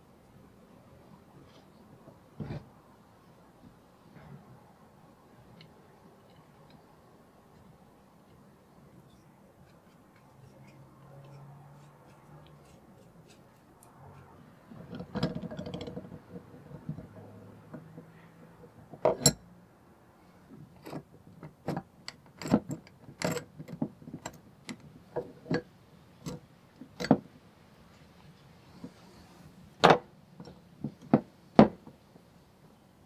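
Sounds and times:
steel vise parts clicking: 0:19.0 - 0:19.4, 0:21.7 - 0:23.6.

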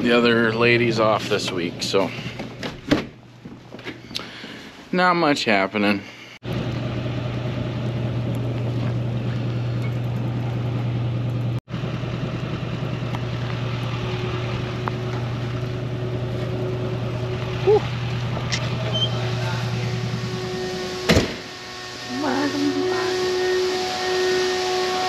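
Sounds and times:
machine humming and rushing: 0:06.5 - 0:25.0
short squeak: 0:18.5 - 0:19.3.

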